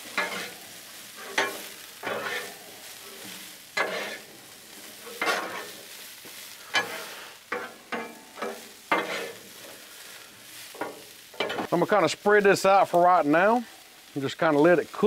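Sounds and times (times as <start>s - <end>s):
vegetables sizzling: 0.0s - 15.0s
metal spatulas scraping griddle: 0.1s - 6.0s, 6.6s - 10.0s, 10.6s - 11.7s.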